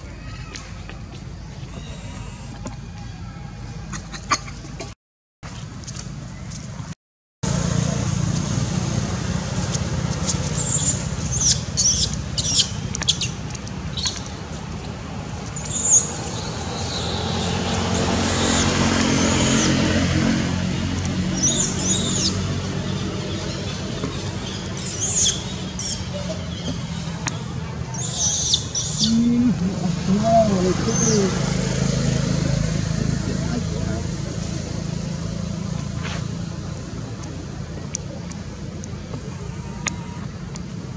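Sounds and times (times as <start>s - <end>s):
baby monkey screaming: 1.8s - 2.6s, 15.6s - 19.8s, 21.3s - 22.4s, 23.5s - 26.6s, 28.0s - 29.2s.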